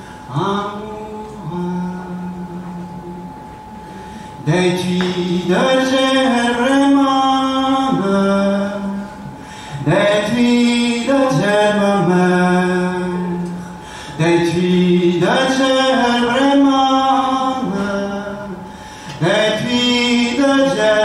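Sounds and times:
young man singing unaccompanied: 4.4s - 9.2s, 9.9s - 13.5s, 14.2s - 18.6s, 19.2s - 21.0s.

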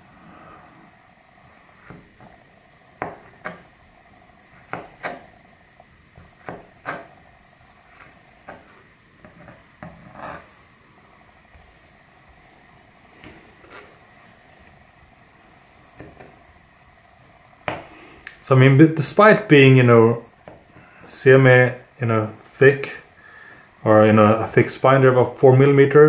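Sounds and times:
knife slicing grapes: 4.6s - 5.3s, 6.1s - 7.2s.

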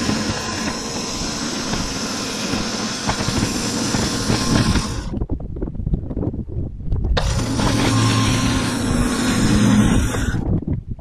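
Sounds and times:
band saw cutting log: 0.0s - 5.2s, 7.2s - 10.5s
engine rumble: 0.0s - 5.3s, 7.1s - 11.0s.

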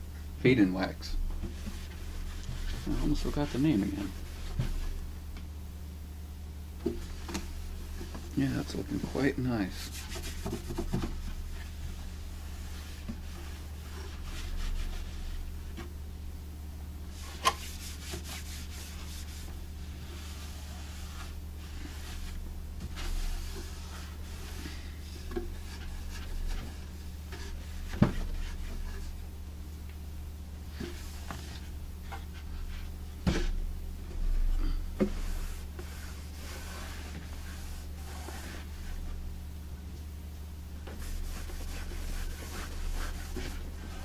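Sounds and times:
steady low hum: 0.0s - 44.0s
cloth rubbing on wood: 1.5s - 5.1s, 6.9s - 15.7s, 17.1s - 29.2s, 30.7s - 33.6s, 35.0s - 39.2s, 40.8s - 44.0s.

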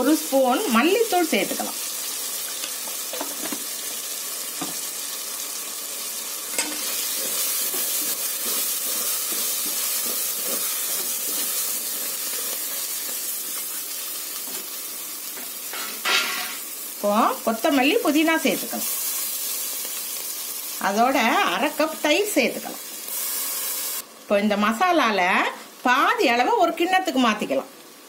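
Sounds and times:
masala sizzling in oil: 0.0s - 28.0s
stirring frying masala: 0.8s - 15.7s.

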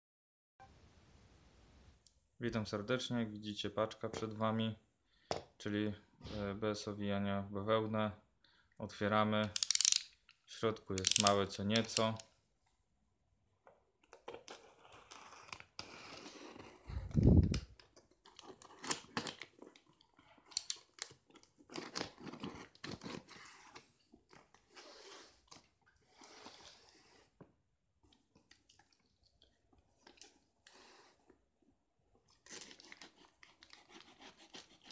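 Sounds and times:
blade scraping cardboard: 32.5s - 34.9s.

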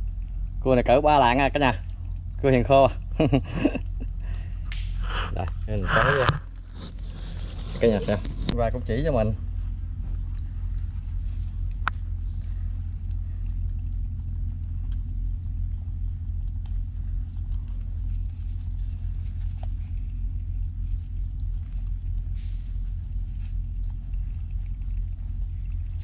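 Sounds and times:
steady low rumble: 0.0s - 26.0s
faint clicks and rustles: 3.6s - 26.0s
sharp click: 4.7s - 5.0s.

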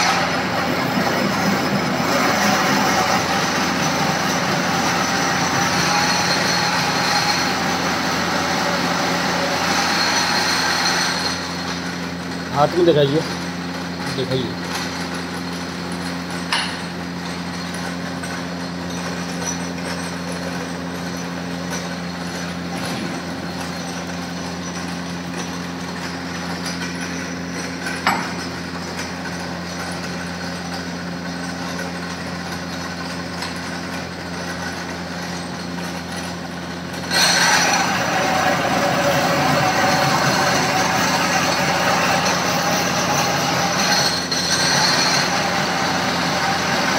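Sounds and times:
drill press motor humming: 0.0s - 35.4s
drill cutting into workpiece: 2.0s - 11.8s, 37.1s - 46.9s.

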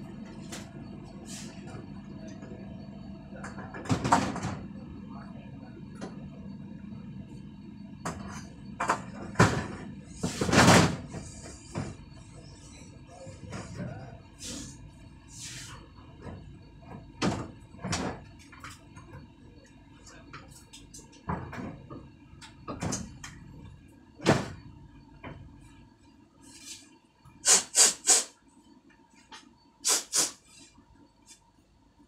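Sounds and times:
short sharp hissing bursts: 27.4s - 28.4s, 29.8s - 30.7s.

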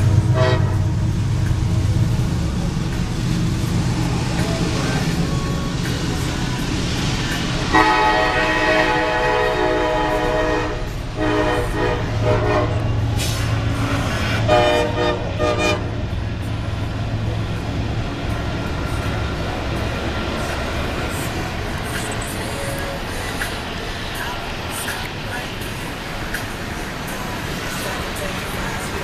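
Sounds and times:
locomotive air horn blasts: 0.0s - 1.0s, 7.7s - 16.0s
steady low rumble: 0.0s - 29.0s.

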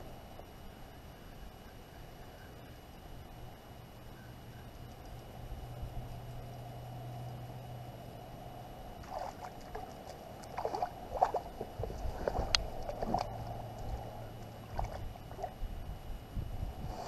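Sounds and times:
steady low hum: 0.0s - 17.0s
fish splashing at water surface: 9.0s - 15.6s.

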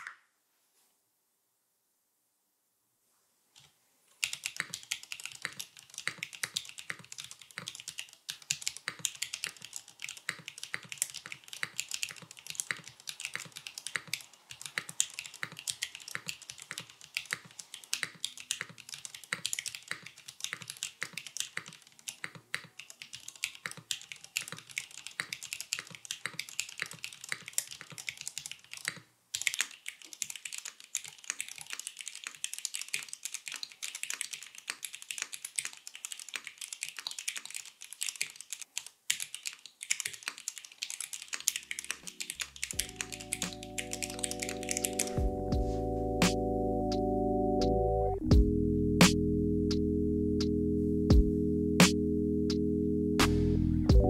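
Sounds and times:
mechanical keyboard typing: 4.2s - 45.3s.

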